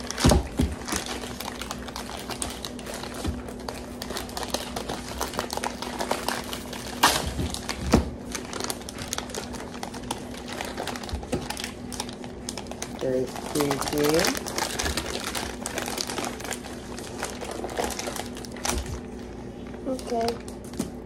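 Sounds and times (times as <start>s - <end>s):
packaging tearing and crinkling: 0.0s - 19.3s.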